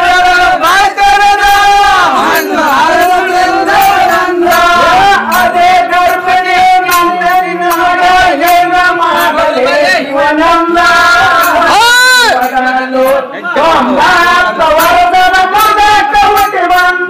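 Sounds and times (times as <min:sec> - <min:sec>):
men singing folk song: 0:00.0 - 0:17.0
sharp regular beats: 0:00.4 - 0:16.6.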